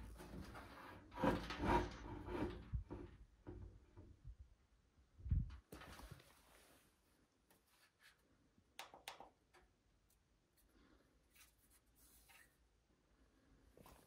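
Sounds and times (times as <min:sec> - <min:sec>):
handling noise rubbing and rustling: 0:00.0 - 0:03.6, 0:05.4 - 0:08.4, 0:10.0 - 0:12.8, 0:13.7 - 0:14.0.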